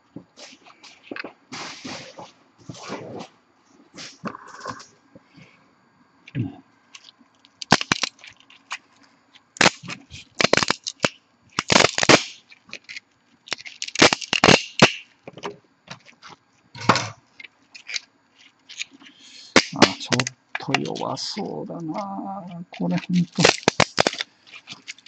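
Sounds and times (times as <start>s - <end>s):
plastic snapping and cracking: 7.0s - 8.9s, 9.6s - 18.1s, 18.7s - 21.0s, 22.7s - 25.0s.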